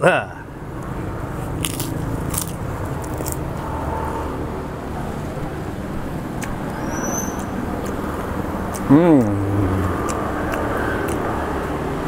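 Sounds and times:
road traffic rumble: 0.0 - 12.0
crackers being chewed: 1.4 - 3.5, 7.7 - 9.3, 9.9 - 11.8.

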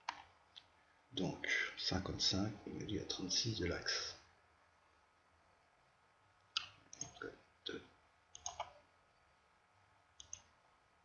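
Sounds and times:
computer mouse clicking: 0.0 - 0.7, 8.3 - 8.8, 10.2 - 10.5.

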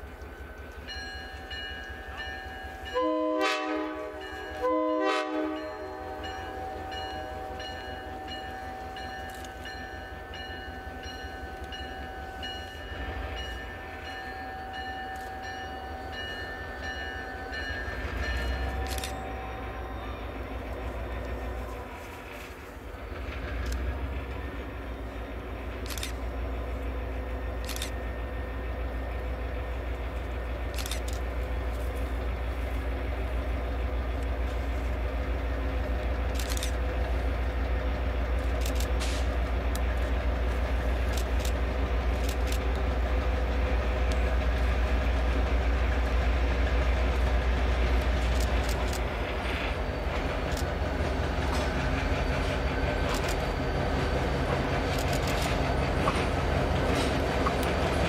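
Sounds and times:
diesel locomotive engine drone: 0.0 - 58.0
sharp clicks: 54.8 - 58.0.

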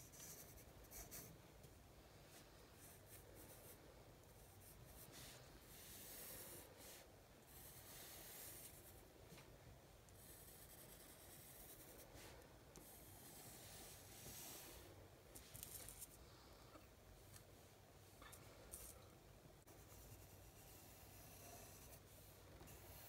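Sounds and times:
pencil scratching on paper: 0.0 - 1.3, 2.8 - 9.0, 10.2 - 16.1, 19.7 - 23.0.

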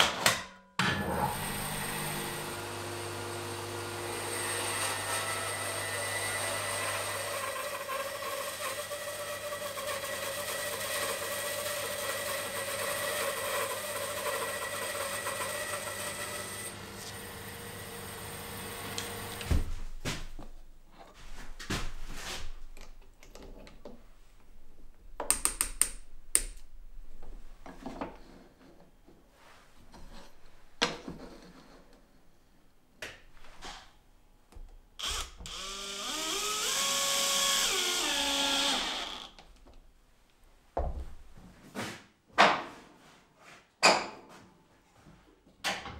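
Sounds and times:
bandsaw cutting wood: 1.2 - 19.5, 35.0 - 39.4.

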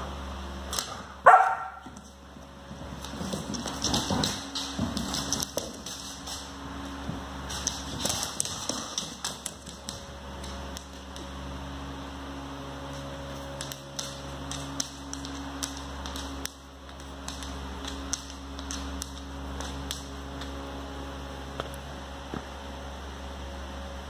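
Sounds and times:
steady background hum: 0.0 - 24.0
dog claws clicking on floor: 0.7 - 1.1, 1.8 - 11.8, 12.8 - 20.8.

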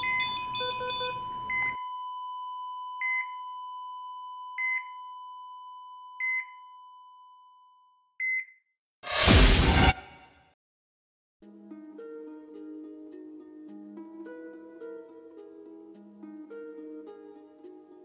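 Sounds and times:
electronic monitor beeps: 0.0 - 1.9
loud burst of noise: 9.1 - 10.4.

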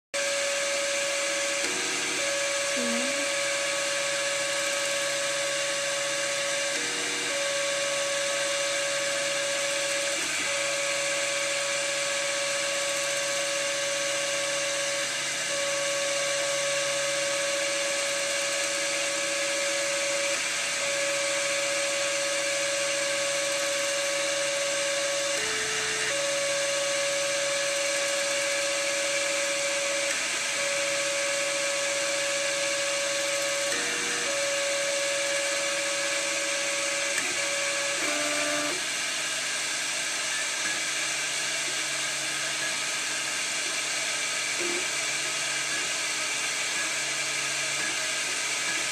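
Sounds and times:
cooling fan whirring: 1.1 - 16.3.

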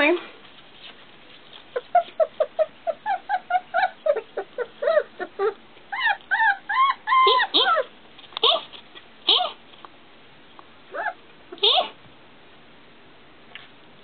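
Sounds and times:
puppy whimpering: 1.7 - 9.6, 10.9 - 12.0.

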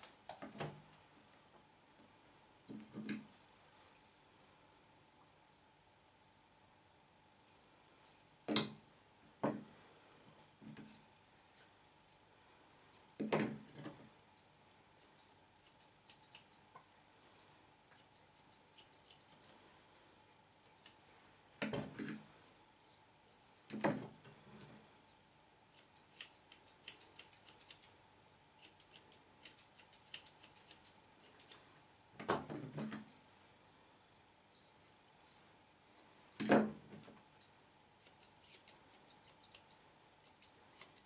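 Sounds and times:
scissors snipping hair: 15.0 - 16.6, 17.2 - 19.6, 20.6 - 21.0, 25.7 - 27.9, 28.6 - 31.6, 37.4 - 41.0.

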